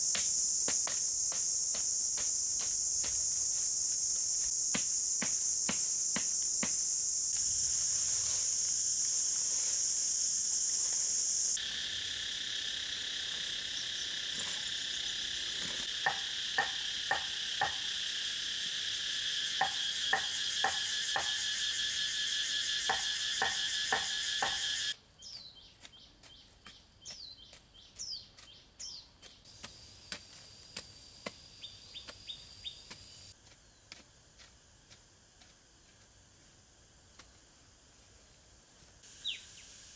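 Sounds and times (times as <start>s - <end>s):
chopping tool striking soil: 0.0s - 3.6s, 4.4s - 6.9s, 15.6s - 17.8s, 22.9s - 24.7s, 25.8s - 28.5s, 29.2s - 32.2s, 32.9s - 36.0s
insect chorus drone: 0.0s - 39.9s
bird chirps: 24.2s - 29.4s, 39.2s - 39.7s.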